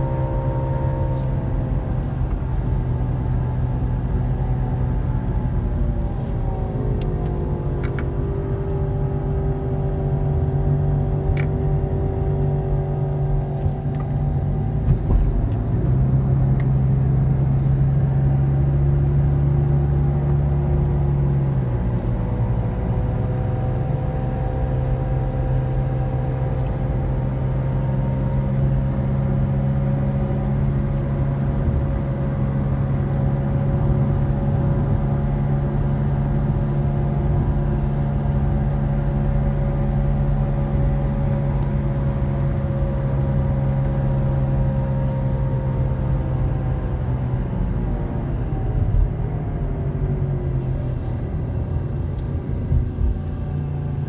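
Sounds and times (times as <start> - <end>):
car engine: 0.0 - 54.0
road noise inside car: 0.0 - 54.0.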